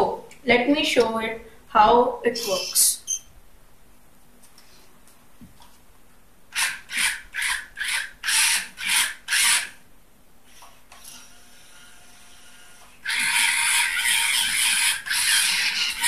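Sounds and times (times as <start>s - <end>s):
faint steady whir: 2.4s - 16.0s
gear motor grinding: 11.0s - 16.0s.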